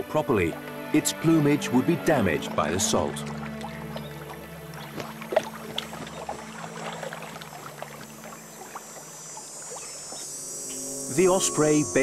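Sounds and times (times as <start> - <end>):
bird splashing in water: 2.5 - 10.4.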